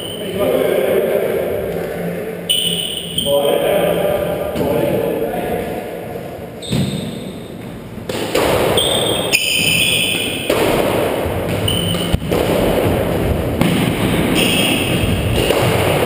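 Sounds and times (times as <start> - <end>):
shoes squeaking on wooden floor: 6.6 - 7.8, 11.5 - 12.2
squash ball cracking off racquets: 8.0 - 16.0.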